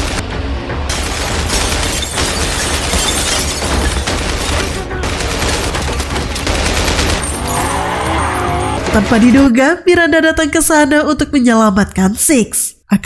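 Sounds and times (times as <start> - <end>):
gunshots and bullet impacts: 0.9 - 9.6.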